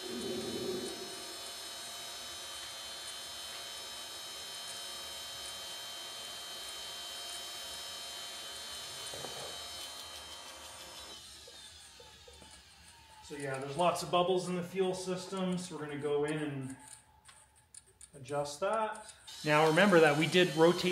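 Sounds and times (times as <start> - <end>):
jet turbine engine whining: 0.0 - 1.5.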